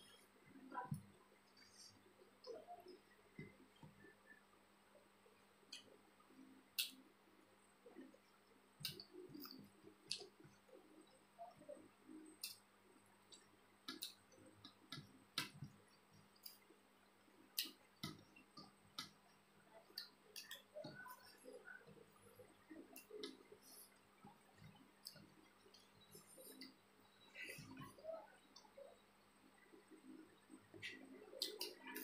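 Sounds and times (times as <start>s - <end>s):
chewing with clicks and smacks: 8.0s - 10.7s.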